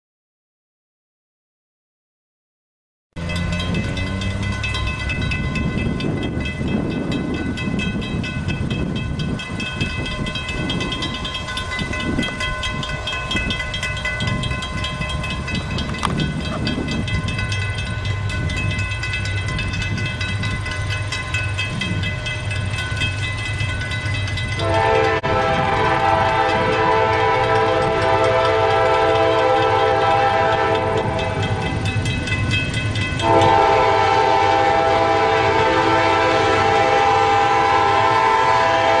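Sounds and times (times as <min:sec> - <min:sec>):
diesel locomotive rumbling: 0:03.2 - 0:39.0
locomotive air horn blast: 0:24.6 - 0:31.5, 0:33.2 - 0:39.0.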